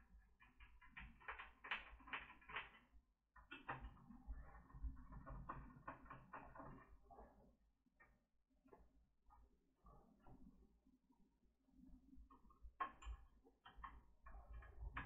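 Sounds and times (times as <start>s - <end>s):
plastic laptop parts clicking: 0.4s - 3.9s.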